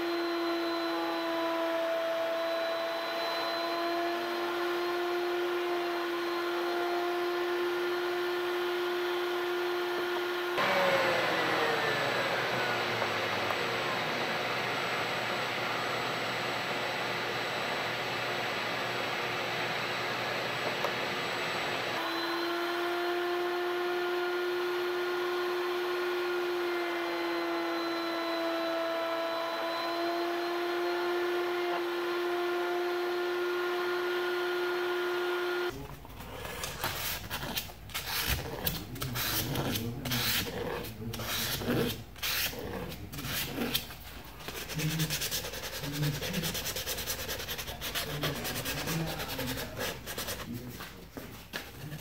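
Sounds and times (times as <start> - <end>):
router whining: 0.0 - 50.6
sandpaper rubbing on wood: 36.8 - 43.8, 44.4 - 50.6.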